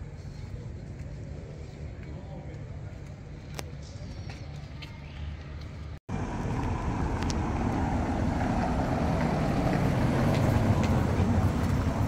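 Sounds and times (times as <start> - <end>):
vehicle passing by: 6.1 - 12.0.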